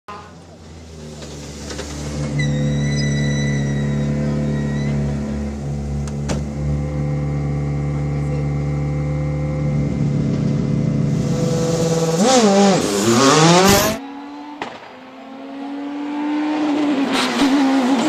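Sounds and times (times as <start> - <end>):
car engine idling: 0.4 - 12.3.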